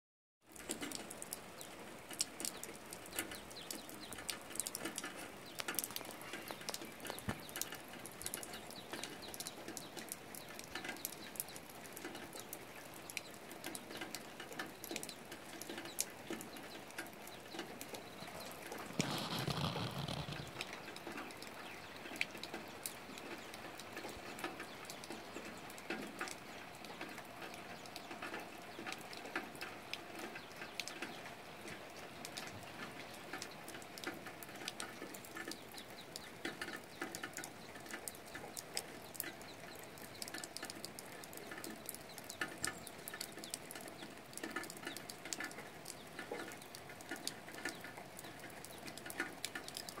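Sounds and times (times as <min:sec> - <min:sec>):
light rain on leaves: 0:00.4 - 0:50.0
raindrops pattering: 0:00.4 - 0:50.0.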